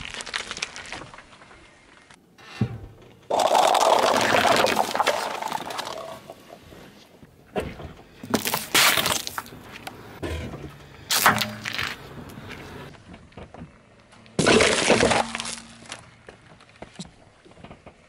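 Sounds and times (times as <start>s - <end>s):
paper cups crushed under tyre: 3.3s - 6.4s, 14.4s - 16.1s.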